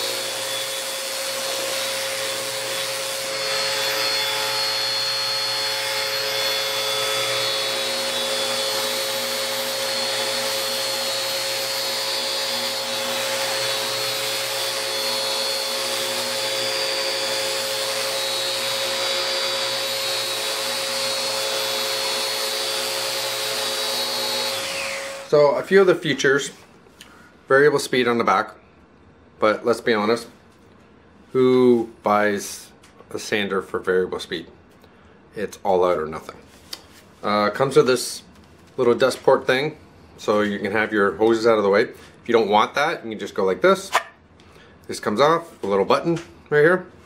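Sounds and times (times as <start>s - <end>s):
orbital sander sanding wood: 0.0s - 25.3s.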